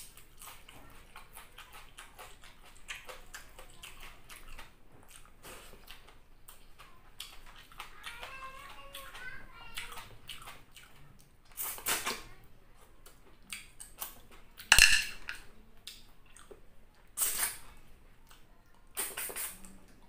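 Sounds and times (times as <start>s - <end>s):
wet slurping of snails: 17.1s - 17.7s, 18.9s - 19.8s.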